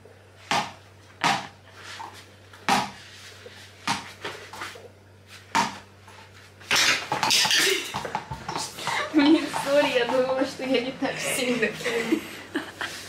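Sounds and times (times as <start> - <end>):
ball knocking on hard surface: 2.7 - 3.0, 6.7 - 10.3.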